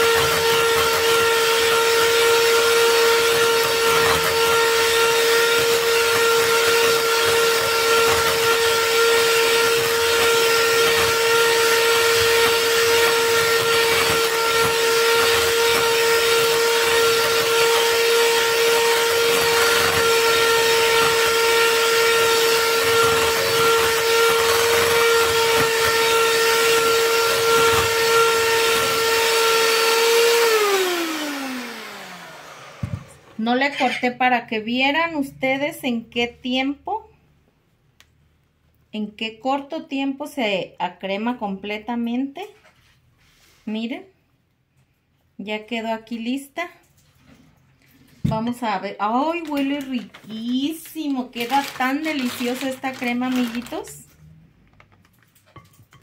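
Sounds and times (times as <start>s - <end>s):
beaters whipping cream: 0.0s - 31.8s, 49.4s - 54.0s
electric hand mixer whine: 0.0s - 34.1s, 51.2s - 54.0s.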